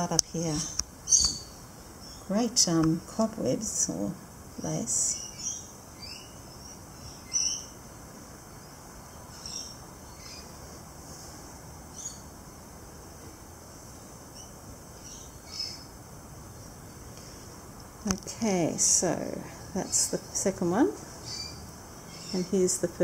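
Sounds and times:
low background hiss: 0.0 - 23.0.

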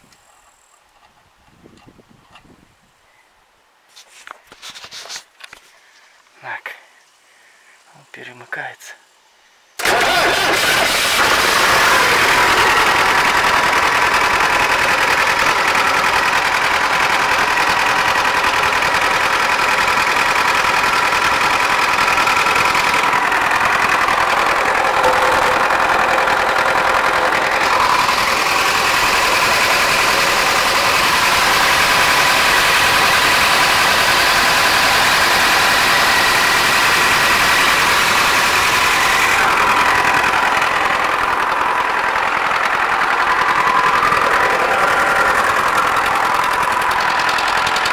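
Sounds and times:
diesel engine running: 9.8 - 47.9.

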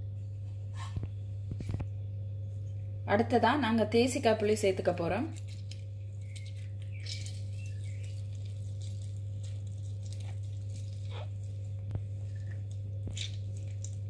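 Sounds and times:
steady low hum: 0.0 - 14.0
lime squishing when squeezed: 5.4 - 14.0.

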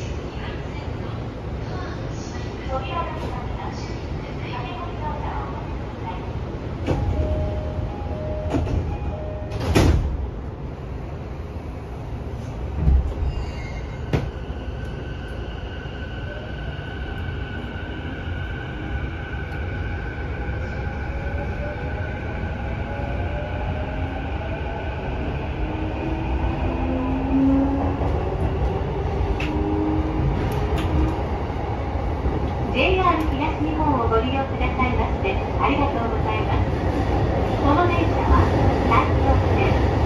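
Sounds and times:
wheels rumbling on rail: 16.5 - 40.0.

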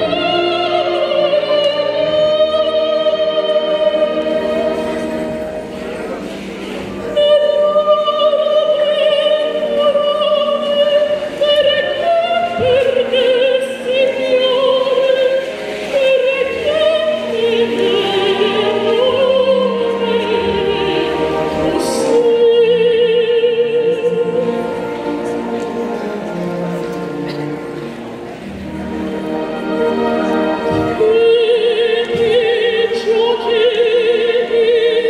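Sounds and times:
woman singing into microphone: 7.1 - 24.9, 30.6 - 35.0.

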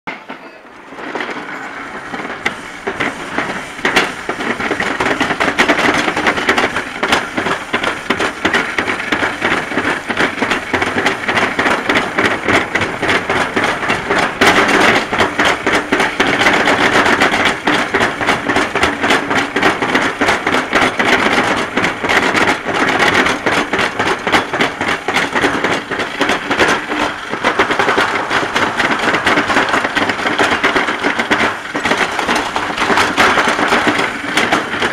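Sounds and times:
sled rumbling on metal track: 0.1 - 34.9.

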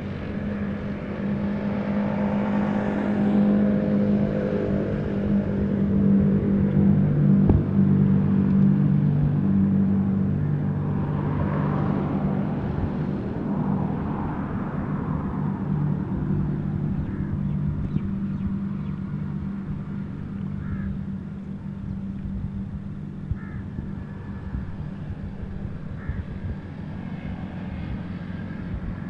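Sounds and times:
low machine hum: 0.0 - 29.0
crow cawing: 20.6 - 20.9, 23.4 - 23.6, 26.0 - 26.2.

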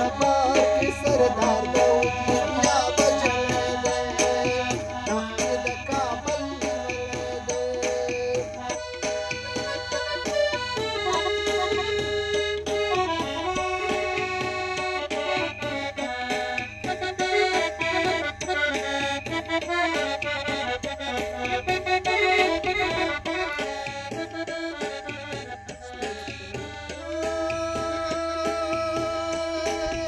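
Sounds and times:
piano accordion folk melody: 0.0 - 30.0.

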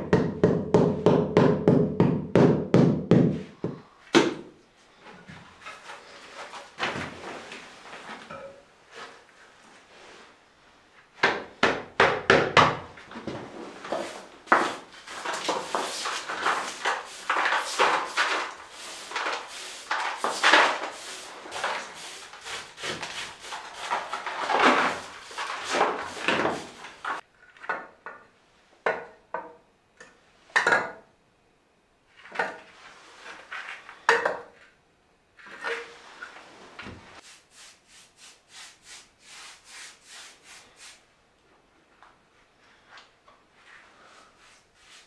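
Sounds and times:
flagstones scraping and knocking: 13.0 - 27.2.

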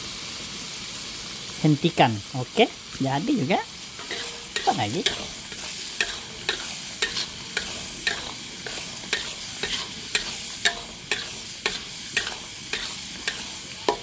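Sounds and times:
tomatoes sizzling in hot oil: 0.0 - 14.0
spatula scraping a pan: 4.0 - 14.0.

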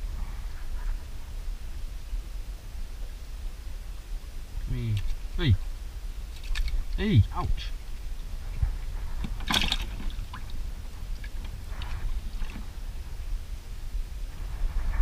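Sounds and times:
steady low rumble: 0.0 - 15.0
splashy handling noises: 6.3 - 7.0, 8.5 - 12.9.

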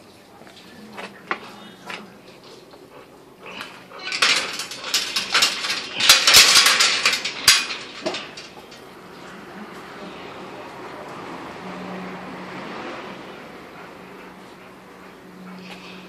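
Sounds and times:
metal gate rattling: 3.5 - 9.2
metal gate clanking shut: 3.6 - 8.8.

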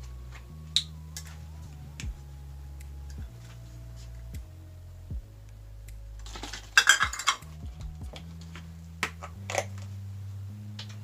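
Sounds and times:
soft background music: 0.0 - 11.0
plastic cups and utensils clattering: 6.2 - 7.4.

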